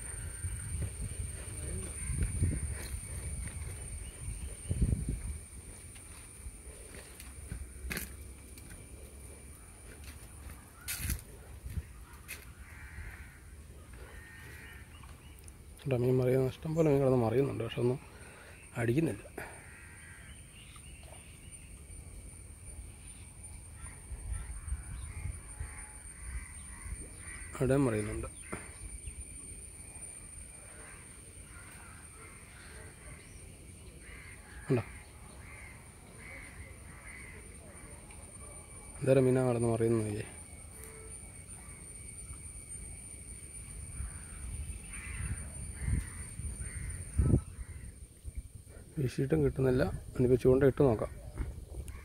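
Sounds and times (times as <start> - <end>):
crow cawing: 0.0 - 4.5, 9.5 - 15.1, 19.3 - 20.7, 23.8 - 29.0, 30.5 - 38.1, 43.8 - 48.1, 51.0 - 52.0
high insect drone: 0.0 - 52.0.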